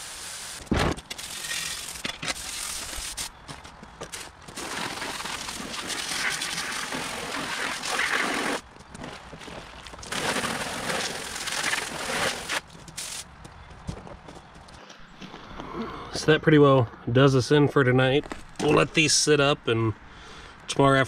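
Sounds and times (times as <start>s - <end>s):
water spraying from hose nozzle: 0.0s - 3.3s, 4.6s - 8.6s, 10.1s - 13.2s.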